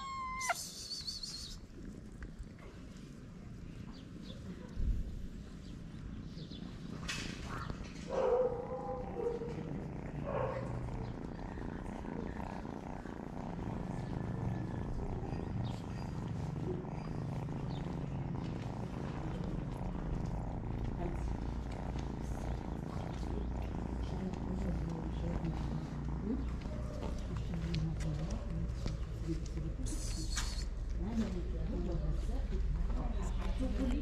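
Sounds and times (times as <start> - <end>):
cat meowing: 0.0 - 1.6
cat purring: 0.0 - 34.0.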